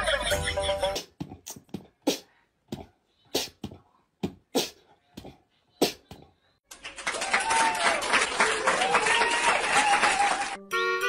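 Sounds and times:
music: 10.4 - 11.0.

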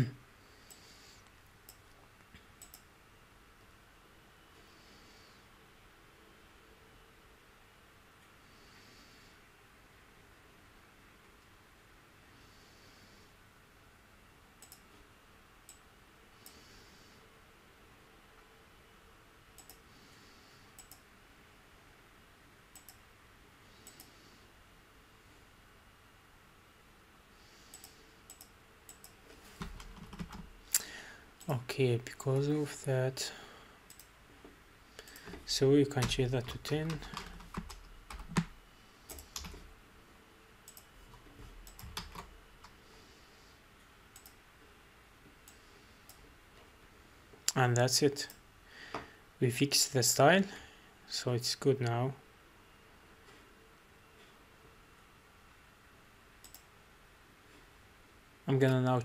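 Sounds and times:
faint room hiss: 0.0 - 59.0
computer mouse clicking: 0.6 - 2.0, 2.6 - 2.9, 14.6 - 14.9, 15.7 - 16.7, 19.6 - 19.9, 20.7 - 21.1, 22.7 - 23.0, 23.8 - 24.2, 27.7 - 30.9, 33.9 - 34.2, 35.0 - 39.7, 40.6 - 42.8, 44.1 - 44.4, 56.4 - 56.7
mouse clicks: 2.6 - 2.9, 14.6 - 14.9, 19.6 - 19.8, 20.8 - 21.0, 22.7 - 23.0, 44.2 - 44.4, 56.4 - 56.7
keyboard keystrokes: 28.3 - 30.5, 41.6 - 42.3.

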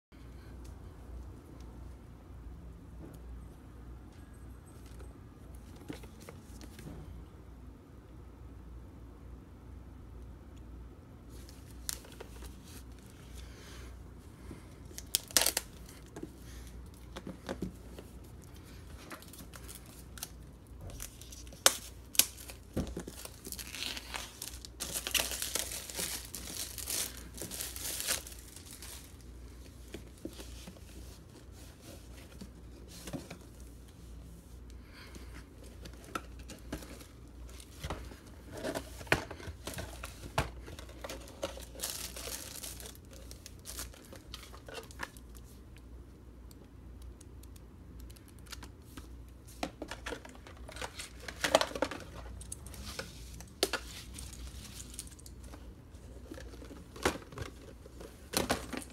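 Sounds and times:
packaging crinkling and tearing: 14.9 - 16.1, 19.1 - 29.2, 38.5 - 45.6.

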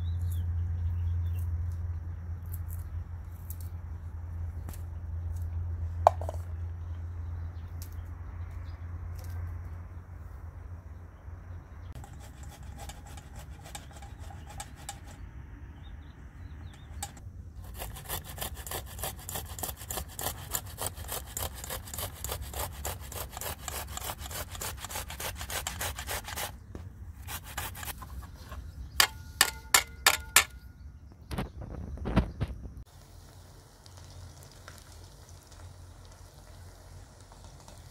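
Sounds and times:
tomatoes grated on metal grater: 12.0 - 15.2, 17.7 - 26.5.

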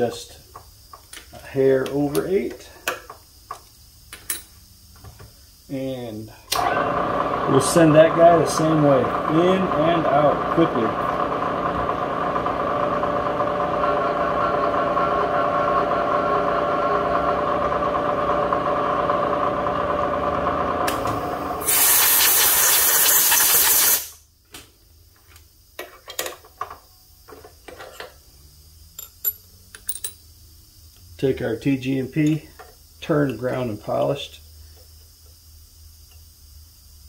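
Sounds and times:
milling machine spindle running: 6.6 - 21.7
loud hiss: 20.9 - 24.3.

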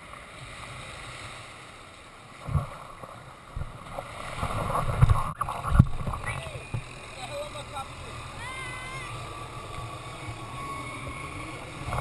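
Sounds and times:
wind noise on microphone: 3.5 - 6.9.

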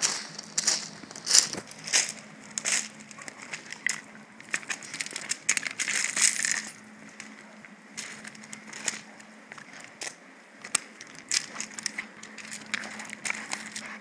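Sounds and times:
paws crunching on gravel: 0.0 - 14.0
spring pole toy rattling: 4.4 - 6.8.

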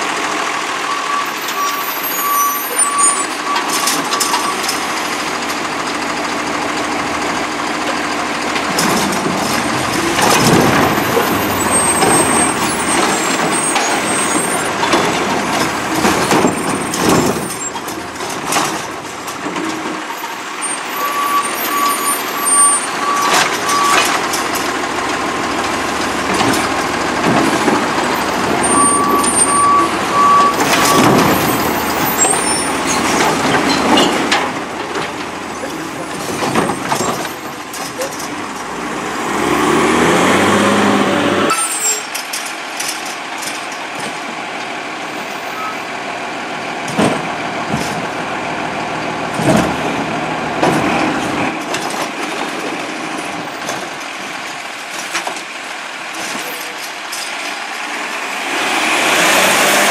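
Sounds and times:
garbage truck engine running: 0.0 - 59.9
warning beeper beeping: 28.6 - 31.2.

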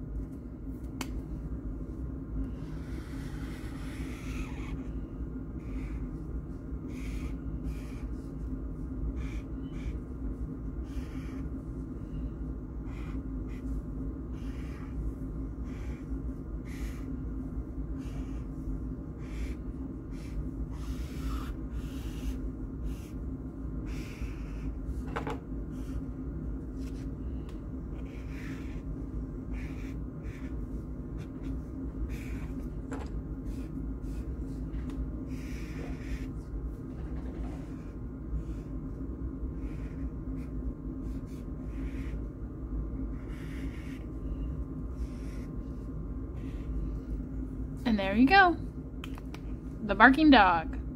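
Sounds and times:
steady low hum: 0.0 - 50.9
marker strokes on paper: 2.5 - 5.0, 5.6 - 11.9, 12.8 - 17.4, 18.0 - 23.2, 23.8 - 25.0, 26.7 - 27.2, 27.9 - 32.8, 33.4 - 36.5, 37.5 - 38.7, 39.5 - 42.3, 43.1 - 47.2.

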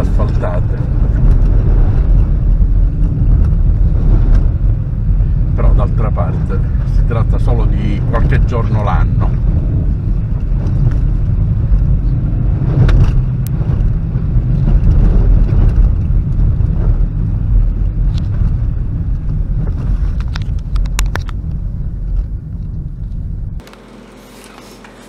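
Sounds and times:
car rumbling on dirt road: 0.0 - 25.0
sharp clicks and knocks: 20.1 - 21.6.

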